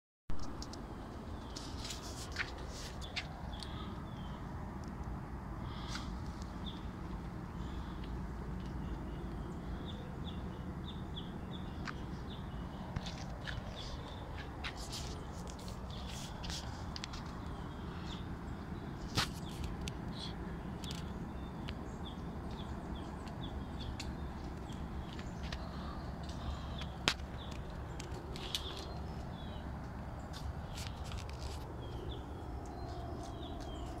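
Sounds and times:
birds chirping: 0:00.4 - 0:34.0
steady low rumble: 0:00.4 - 0:34.0.

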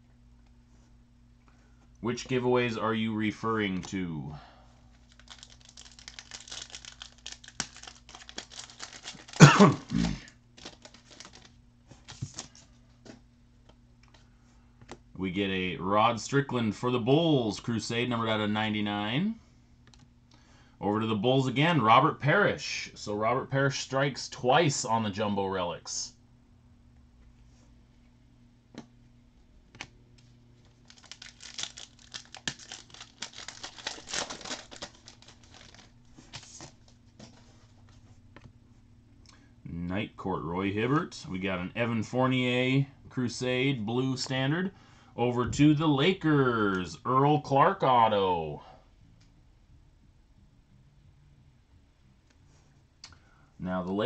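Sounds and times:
cards and foil wrappers rustling: 0:04.9 - 0:12.9, 0:30.6 - 0:37.7
person clearing throat: 0:09.4 - 0:10.3.

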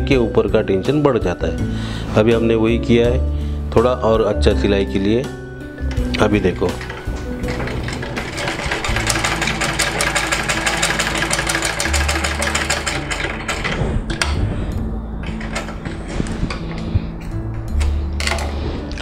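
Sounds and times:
sewing machine clatter: 0:05.9 - 0:14.3.

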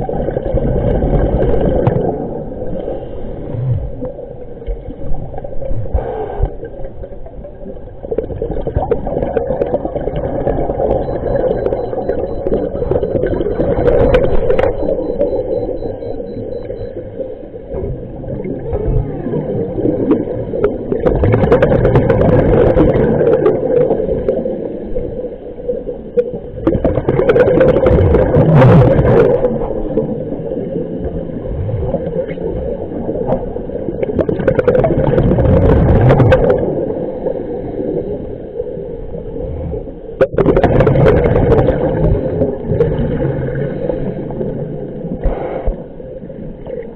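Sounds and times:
muffled underwater water rushing: 0:00.0 - 0:46.9.

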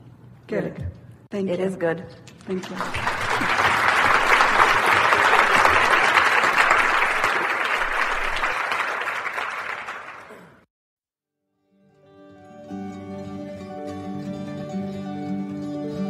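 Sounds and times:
audience applauding: 0:02.5 - 0:10.6.

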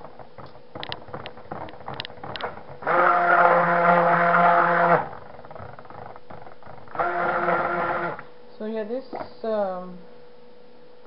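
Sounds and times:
stick blender motor hum: 0:00.0 - 0:08.4.

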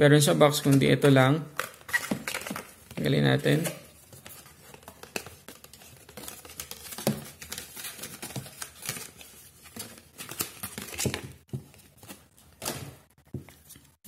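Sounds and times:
cardboard and paper rustling: 0:01.7 - 0:14.0.

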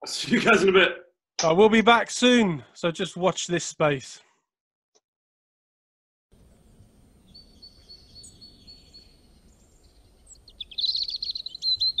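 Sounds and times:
birds chirping: 0:06.6 - 0:12.0.

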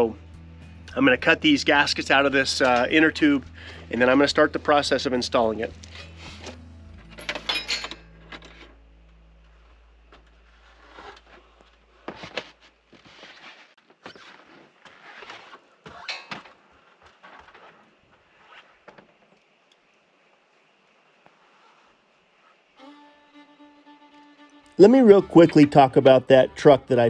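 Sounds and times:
low steady hum: 0:00.0 - 0:12.9
metal hardware clinking: 0:07.0 - 0:08.8.

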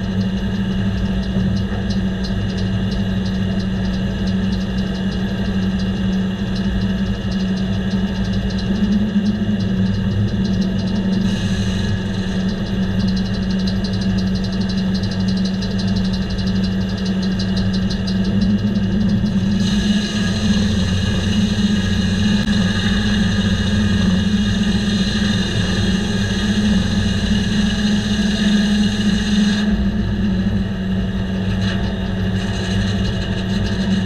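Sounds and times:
diesel engine running: 0:00.0 - 0:34.0
circular saw blade spinning: 0:17.4 - 0:34.0.

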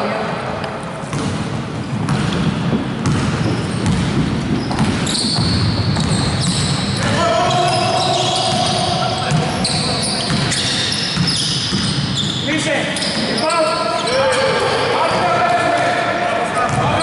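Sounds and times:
basketball bouncing on hardwood floor: 0:02.0 - 0:07.1, 0:11.2 - 0:12.0
players' voices: 0:07.0 - 0:11.5, 0:12.3 - 0:17.0.

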